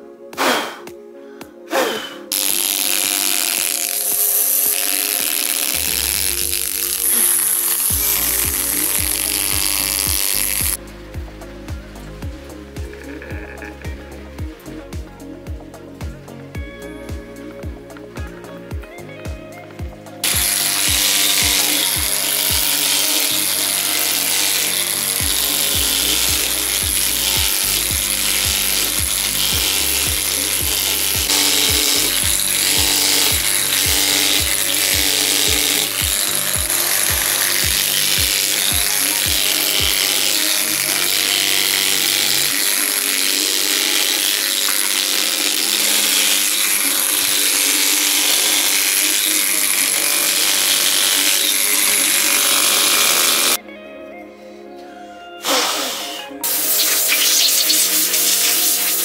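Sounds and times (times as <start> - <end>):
background music with low beat: 0.0 - 53.9
pneumatic air hammer on stone: 1.7 - 10.8, 20.2 - 53.6, 55.4 - 59.0.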